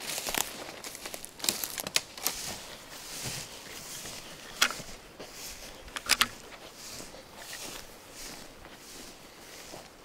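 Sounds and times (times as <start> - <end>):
twigs snapping: 0.0 - 2.5
footsteps through dry brush: 0.0 - 10.0.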